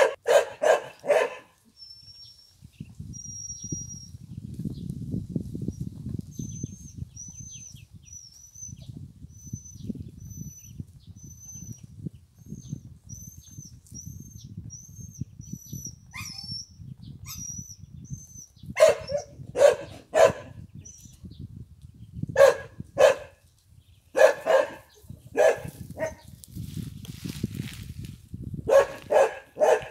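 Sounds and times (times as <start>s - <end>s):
dog barking: 0.0s - 1.6s, 18.8s - 20.6s, 22.4s - 23.4s, 24.2s - 26.2s, 28.7s - 29.9s.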